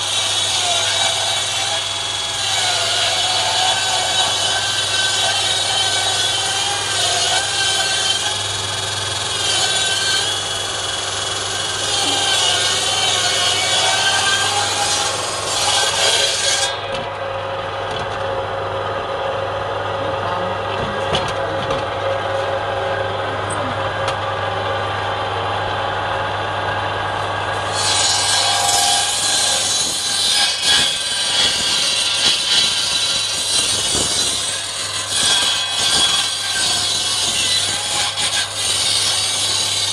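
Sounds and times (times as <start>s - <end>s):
saw rasping through log: 0.0s - 17.2s, 27.5s - 39.9s
power saw motor hum: 1.8s - 37.7s.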